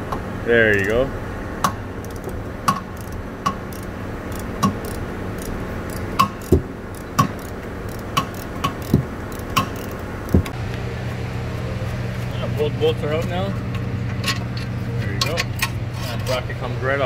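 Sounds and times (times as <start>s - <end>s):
hand ratchet clicking: 1.6s - 10.5s
dull metal knocks: 6.2s - 7.5s, 8.2s - 10.6s.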